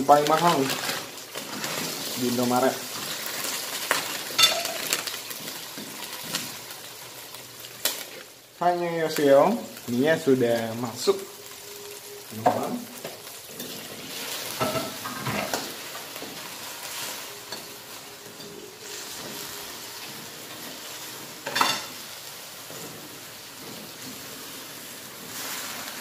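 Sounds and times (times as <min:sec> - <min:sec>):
steady sizzling hiss: 0:00.0 - 0:26.0
spatula stirring noodles in a wok: 0:00.2 - 0:08.6, 0:12.9 - 0:26.0.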